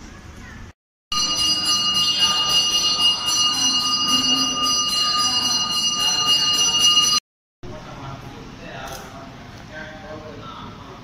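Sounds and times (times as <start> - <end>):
temple bells ringing rapidly: 1.1 - 7.2.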